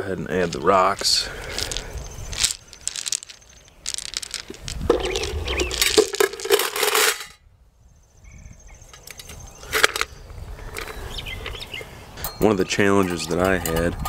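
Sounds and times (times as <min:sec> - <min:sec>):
rocks clattering in steel pot: 0:01.5 - 0:07.4.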